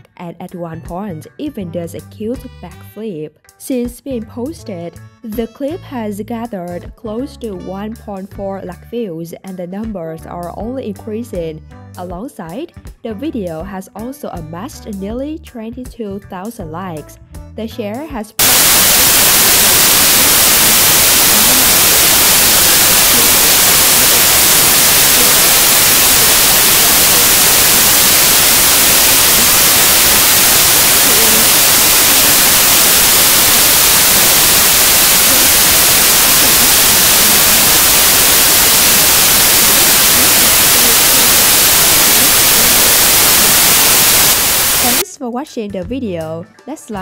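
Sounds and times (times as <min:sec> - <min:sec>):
static hiss: 0:18.4 - 0:45.0.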